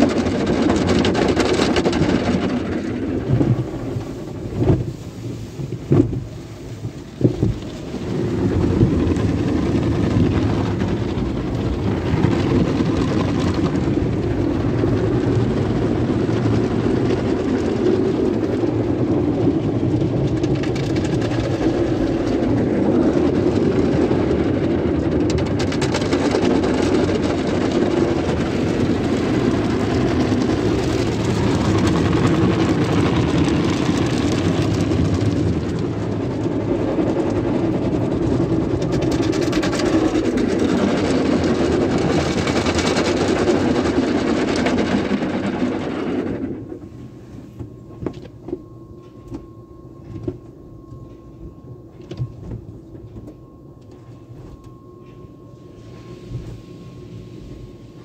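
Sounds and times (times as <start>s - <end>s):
car wash brushes scrubbing car: 0.0s - 47.7s.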